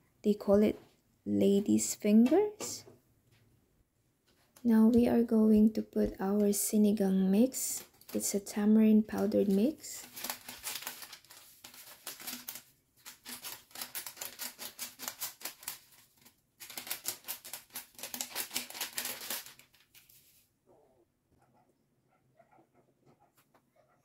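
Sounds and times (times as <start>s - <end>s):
foil sachet crinkling: 9.1s - 20.4s.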